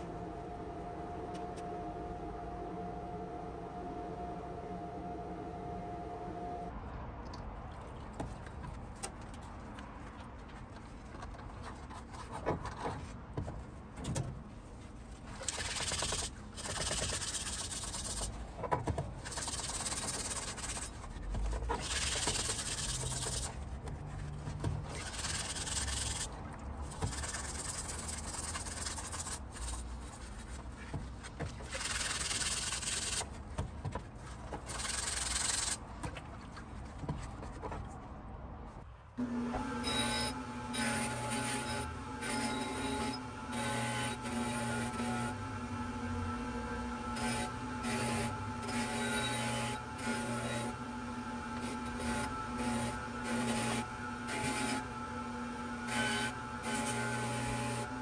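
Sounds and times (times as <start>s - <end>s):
scrubber pad rubbing on metal: 19.2s - 33.3s.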